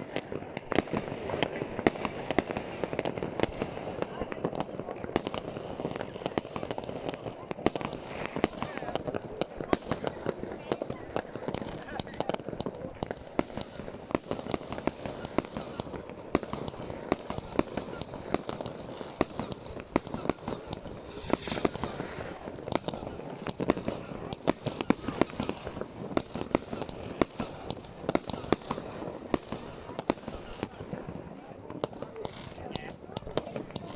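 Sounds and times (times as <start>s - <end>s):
fireworks bangs: 0.0s - 33.9s
firework hiss: 19.2s - 29.0s.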